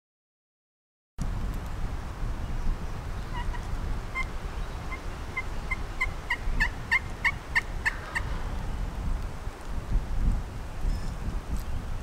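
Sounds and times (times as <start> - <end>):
turkey yelping: 5.4 - 8.3.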